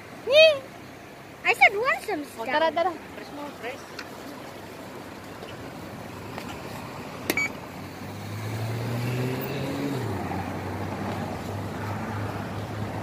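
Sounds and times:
road traffic: 0.0 - 13.0
vehicle engine passing close: 2.8 - 13.0
brief beep: 7.3 - 7.6.

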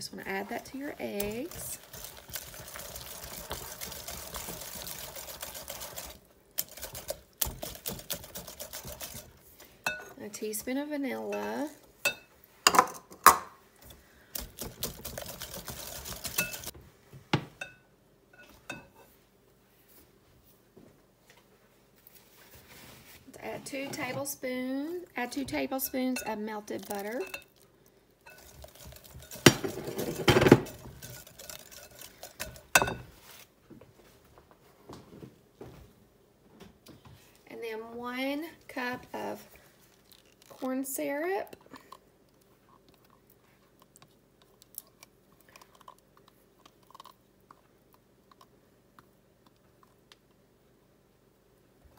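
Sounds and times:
whisk beating in bowl: 1.1 - 9.4, 14.4 - 16.7, 28.3 - 33.0
whisk clinking against glass: 15.5 - 16.7, 28.3 - 33.0.

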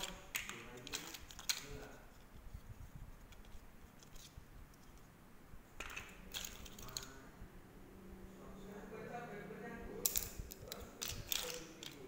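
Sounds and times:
rustling and scraping: 0.0 - 7.2.

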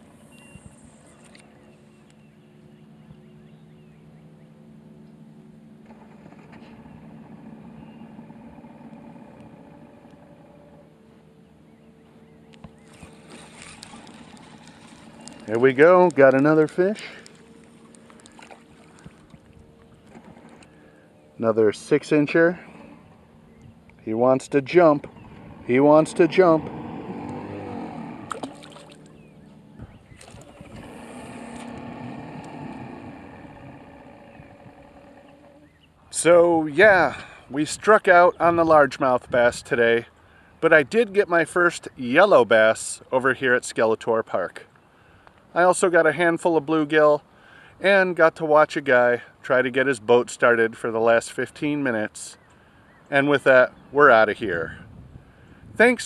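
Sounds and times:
outboard motor humming: 0.0 - 42.9
faint distant boat engine idling: 0.0 - 56.0.

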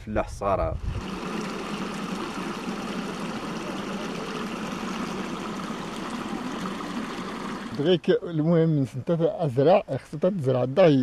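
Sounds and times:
water rushing down a channel: 0.8 - 8.0.

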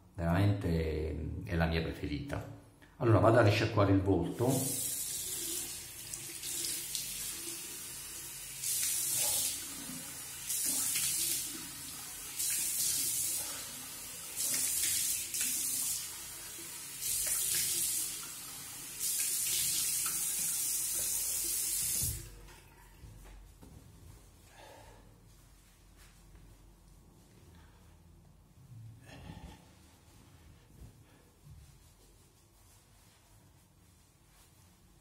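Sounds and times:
water splashing on face: 8.6 - 16.2, 16.9 - 18.3
tap running into sink: 21.7 - 22.4.

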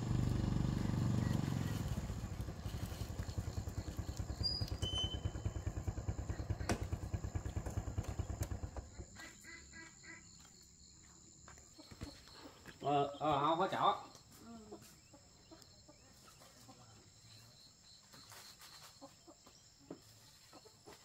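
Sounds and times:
small motorbike engine puttering: 0.0 - 9.2.

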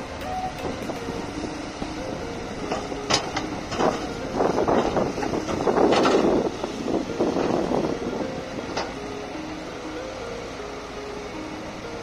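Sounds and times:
excavator running: 0.0 - 12.0.

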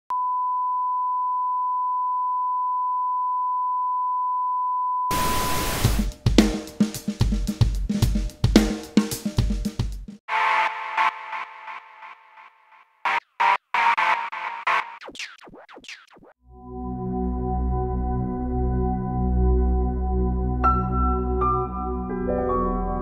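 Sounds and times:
drum-kit beat: 5.1 - 12.5, 13.1 - 16.2.

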